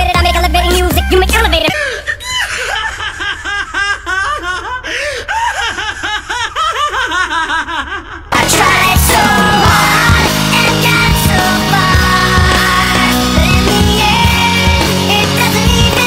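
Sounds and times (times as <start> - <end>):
music: 0.0 - 1.7, 8.3 - 16.0
man laughing loudly: 1.8 - 8.3.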